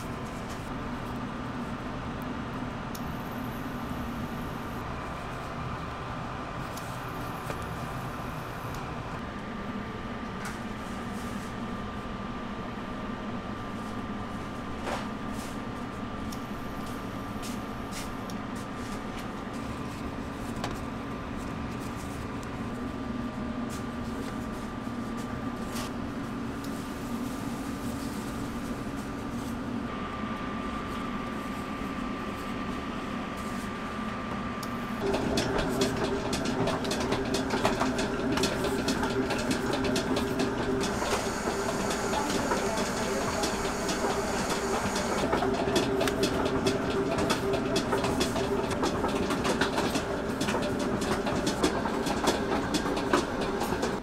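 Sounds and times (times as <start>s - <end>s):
kitchen machinery humming: 34.6s - 54.0s.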